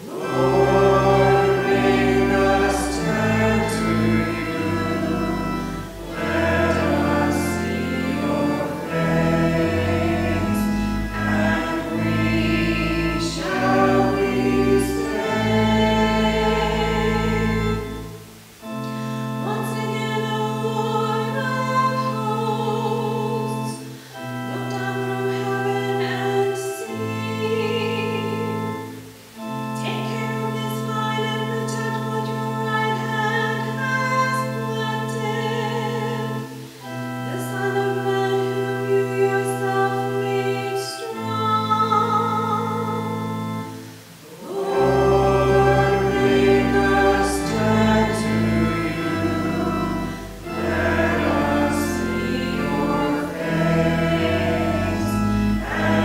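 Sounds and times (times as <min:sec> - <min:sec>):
organ accompaniment: 0:00.0 - 0:56.0
woman singing: 0:19.4 - 0:23.8, 0:24.5 - 0:28.7, 0:29.8 - 0:36.3, 0:37.3 - 0:43.2.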